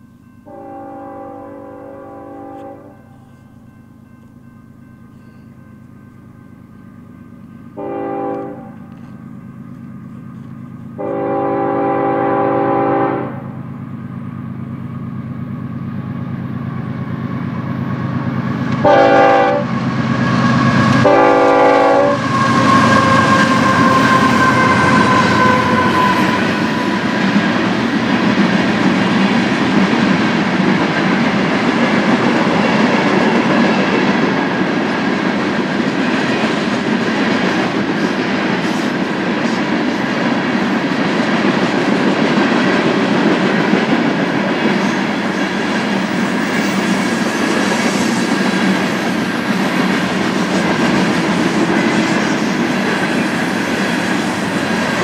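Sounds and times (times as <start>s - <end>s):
locomotive engine drone: 0.0s - 55.0s
train horn blasts: 0.4s - 3.5s, 7.8s - 9.1s, 10.9s - 13.7s, 18.7s - 27.4s
train wheels clickety-clack: 18.2s - 55.0s.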